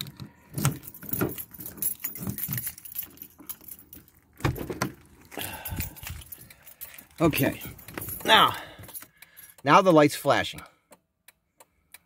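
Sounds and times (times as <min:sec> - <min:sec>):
keys jangling: 0:00.0 - 0:09.6.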